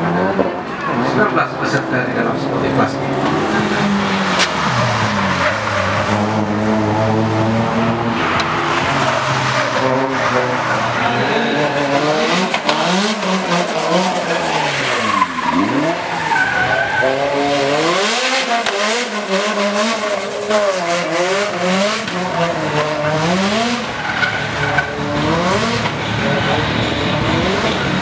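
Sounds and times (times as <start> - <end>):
car engine revving: 0.0 - 28.0.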